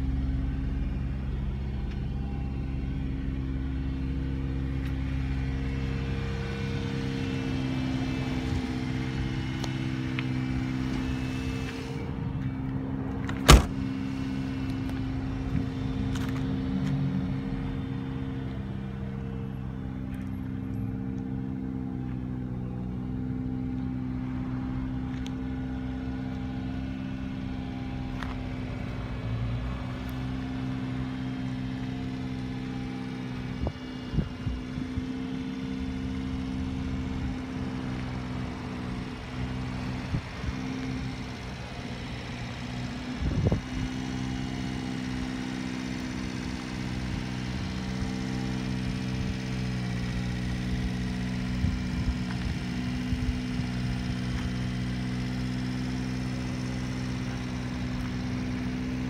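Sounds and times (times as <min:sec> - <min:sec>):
truck engine idling: 0:00.0 - 0:59.0
car door slamming: 0:13.2 - 0:14.1.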